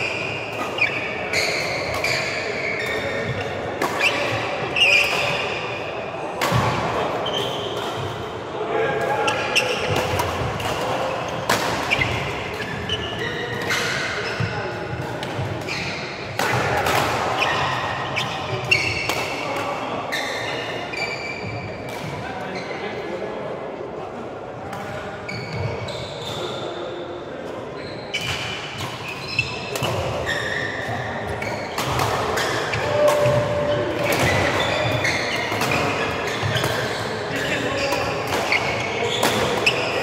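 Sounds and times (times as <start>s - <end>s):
shoes squeaking on court: 0.0s - 5.6s, 9.2s - 16.1s, 17.4s - 19.1s, 25.2s - 26.8s, 27.8s - 40.0s
rackets hitting shuttlecock: 6.3s - 8.2s, 9.0s - 19.8s, 28.2s - 40.0s.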